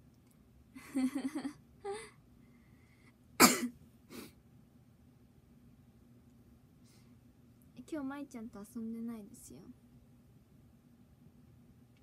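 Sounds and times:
woman coughing: 0:03.4 - 0:03.7.

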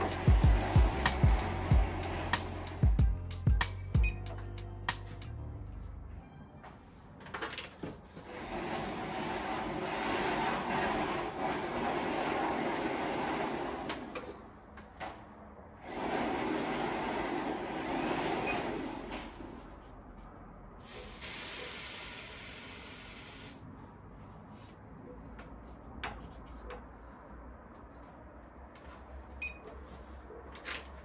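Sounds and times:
pressurised gas hissing: 0:20.8 - 0:23.6.

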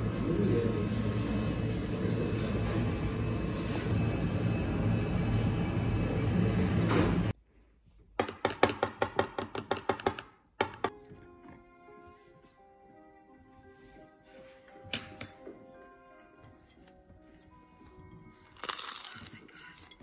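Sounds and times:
bakery shop murmur: 0:00.0 - 0:07.3
baguette crust crackling: 0:18.4 - 0:20.0.

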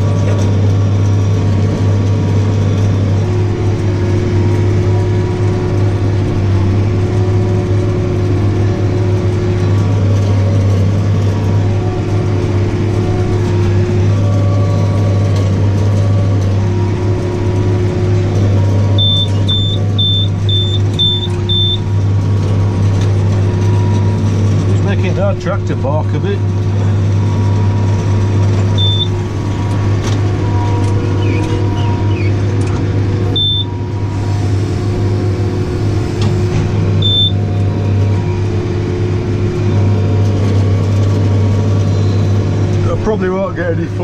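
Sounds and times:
tractor engine under load: 0:00.0 - 0:44.0
machine whine: 0:16.3 - 0:43.2
monitor beeping: 0:19.0 - 0:21.9, 0:28.8 - 0:29.1, 0:33.4 - 0:33.7, 0:37.0 - 0:37.4.

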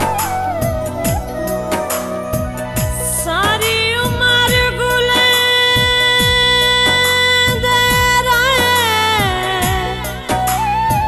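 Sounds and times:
held melody note: 0:00.0 - 0:04.0
drum beat: 0:00.0 - 0:04.6.

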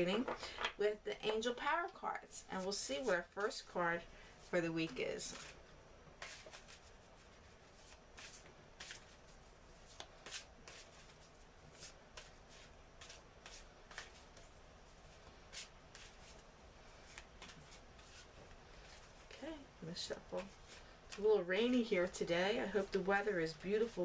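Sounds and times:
cards being shuffled by hand: 0:04.8 - 0:05.6, 0:06.2 - 0:19.3.

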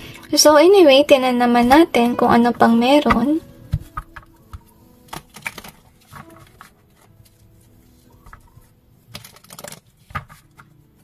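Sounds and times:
cards clicking and tapping: 0:03.1 - 0:07.4, 0:08.2 - 0:11.0
cards shuffling: 0:03.1 - 0:11.0.

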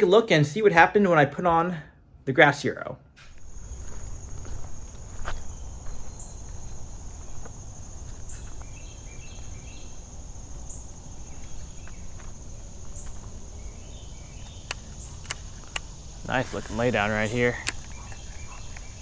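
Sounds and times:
insect chorus buzzing: 0:03.3 - 0:19.0
chirps: 0:05.4 - 0:19.0.

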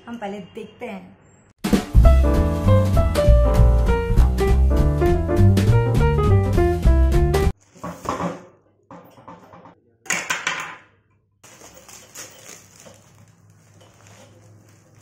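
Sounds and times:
plastic packaging crinkling: 0:11.4 - 0:15.0.

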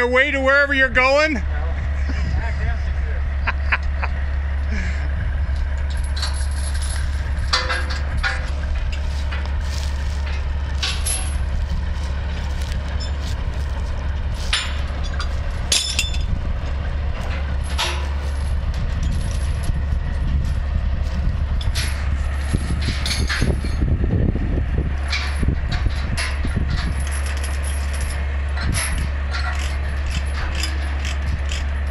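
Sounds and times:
truck engine idling: 0:00.0 - 0:31.9
metal chains clanking: 0:05.5 - 0:23.8, 0:25.0 - 0:31.9.

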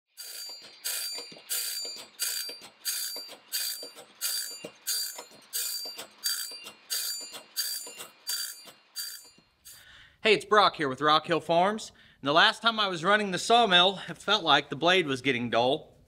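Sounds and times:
grinding wheel sharpening saw blade: 0:00.1 - 0:09.8.

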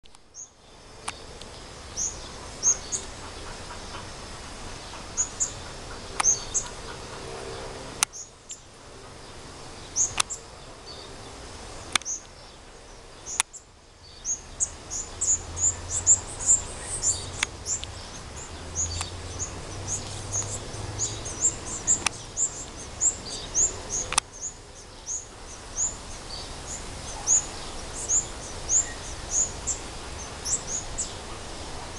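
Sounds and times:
songbirds chirping: 0:00.0 - 0:31.9
sharp clicks: 0:06.2 - 0:06.4, 0:10.1 - 0:10.4, 0:11.9 - 0:12.3, 0:21.9 - 0:22.2, 0:24.0 - 0:24.4.

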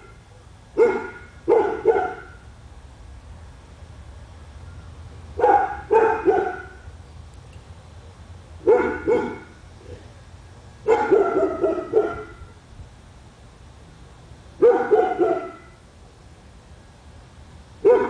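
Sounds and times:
dog barking: 0:00.8 - 0:02.4, 0:05.4 - 0:06.8, 0:08.6 - 0:09.5, 0:10.8 - 0:12.4, 0:14.6 - 0:15.8.

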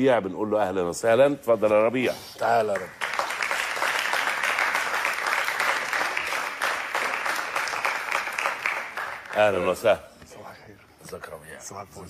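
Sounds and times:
audience applauding: 0:02.6 - 0:09.9.

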